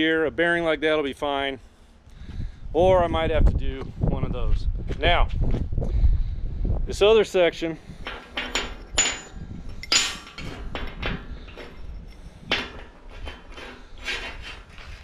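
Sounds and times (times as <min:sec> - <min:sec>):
metal clanks and knocks: 0:08.0 - 0:15.0.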